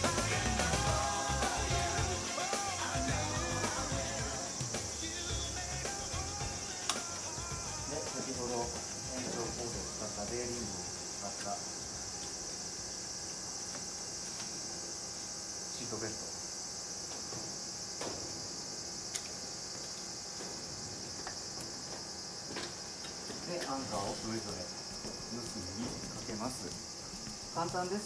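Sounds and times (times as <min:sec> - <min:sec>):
insects droning: 0:00.0 - 0:28.0.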